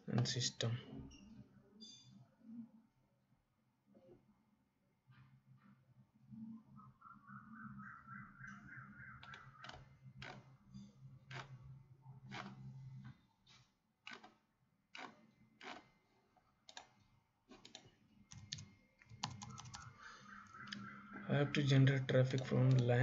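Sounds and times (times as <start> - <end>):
mouse and keyboard clicks: 16.7 - 19.9, 22.2 - 22.9.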